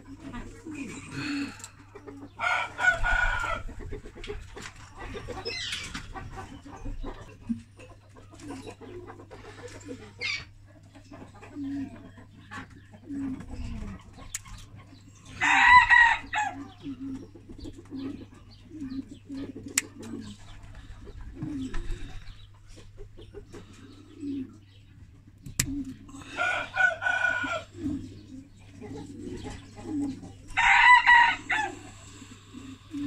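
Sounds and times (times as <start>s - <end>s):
low clucks: 3.6s - 15.0s, 16.6s - 26.4s, 27.6s - 30.6s, 31.5s - 33.0s
rooster crowing: 15.4s - 16.6s, 26.2s - 27.7s, 30.6s - 31.9s.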